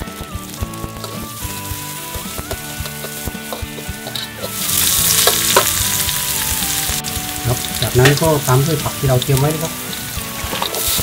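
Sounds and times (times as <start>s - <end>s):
garlic and chilies sizzling in oil: 0.0s - 11.0s
spatula knocking on wok: 0.1s - 6.3s.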